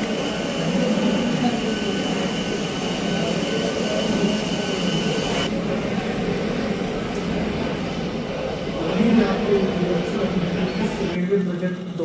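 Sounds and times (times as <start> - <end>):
thin high whine: 0.0 - 11.2
train engine drone: 0.0 - 12.0.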